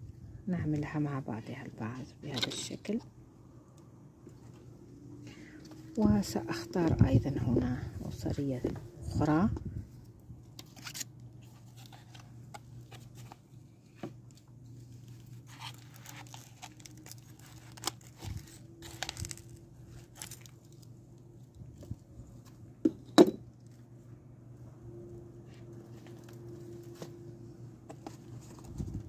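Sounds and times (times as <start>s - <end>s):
faint low hum: 0.0s - 29.0s
leaves rustling and crackling: 15.0s - 20.8s.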